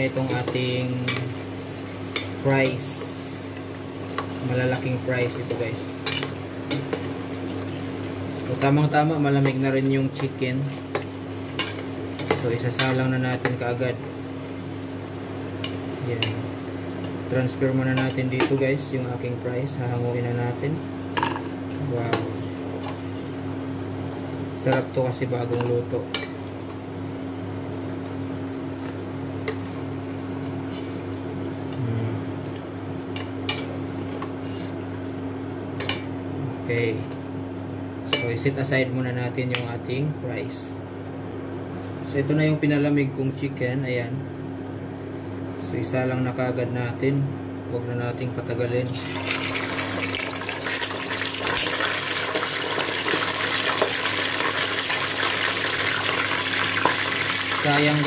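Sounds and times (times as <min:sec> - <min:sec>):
potatoes frying in hot oil: 0:00.0 - 0:14.1, 0:48.9 - 0:58.0
steady low hum: 0:00.0 - 0:51.4
chicken sizzling in hot oil: 0:49.0 - 0:58.0.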